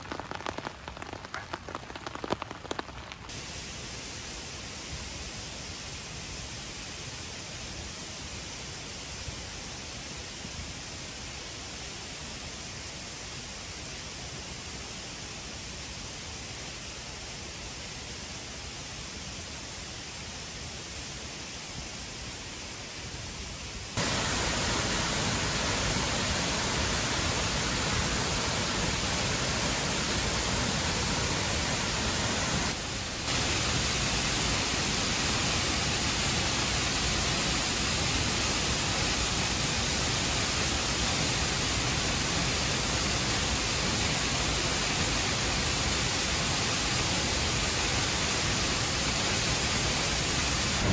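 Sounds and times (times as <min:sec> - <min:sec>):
waterfall rushing: 0:24.0 - 0:50.9.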